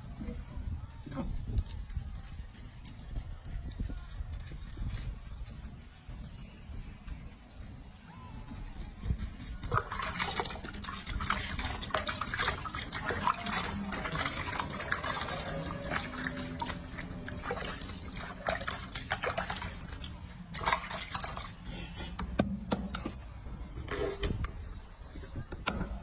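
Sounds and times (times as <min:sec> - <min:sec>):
water splashing in sink: 0:09.7 - 0:21.6.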